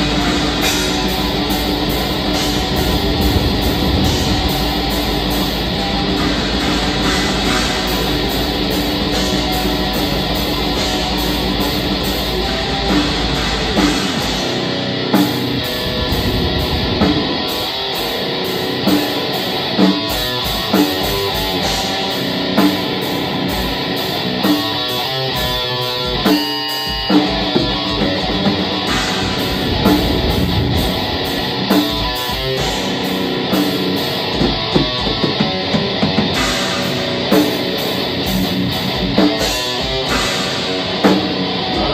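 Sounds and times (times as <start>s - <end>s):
distorted electric guitars: 0.0s - 41.9s
metal band playing live: 0.0s - 41.9s
drum hits: 0.6s - 9.5s, 15.2s - 18.3s, 28.9s - 32.8s.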